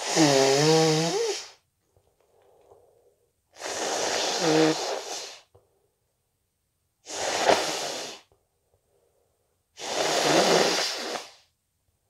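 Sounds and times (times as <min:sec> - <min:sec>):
person blowing nose into tissue: 0:00.0 - 0:01.6, 0:03.6 - 0:05.5, 0:07.0 - 0:08.3, 0:09.8 - 0:11.5.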